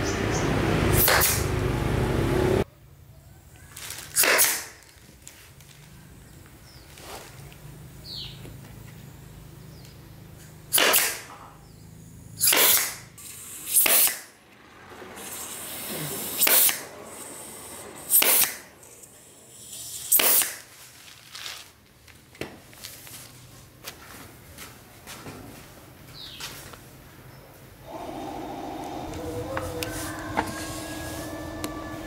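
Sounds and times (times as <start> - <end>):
pressurised spray hissing: 13.2 - 20.4, 27.9 - 32.0.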